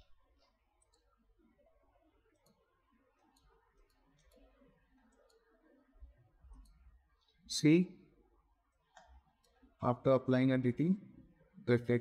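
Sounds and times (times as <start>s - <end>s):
faint computer mouse clicks: 0.8s - 1.1s, 2.3s - 5.5s, 6.5s - 6.8s, 8.9s - 9.6s.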